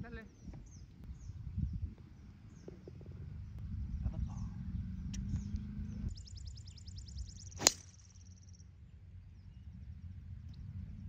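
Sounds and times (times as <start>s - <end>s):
golf club striking ball: 7.6s - 8.2s.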